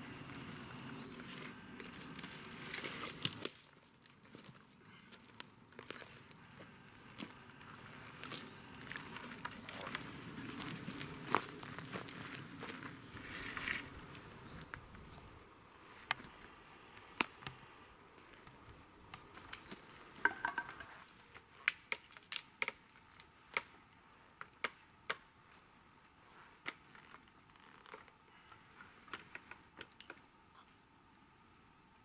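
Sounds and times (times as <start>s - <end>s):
boots and wooden poles knocking: 19.4s - 21.0s.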